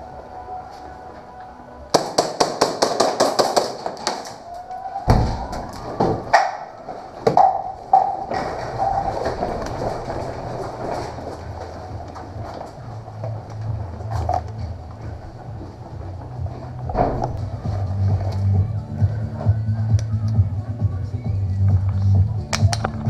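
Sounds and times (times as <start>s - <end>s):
shuffling movement: 5.8s - 19.8s.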